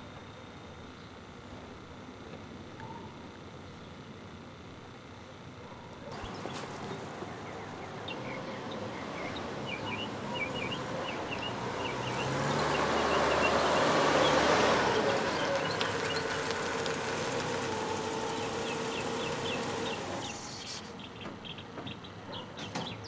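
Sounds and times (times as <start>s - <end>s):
birds chirping: 5.6s - 23.0s
car engine approaching and idling: 6.1s - 20.5s.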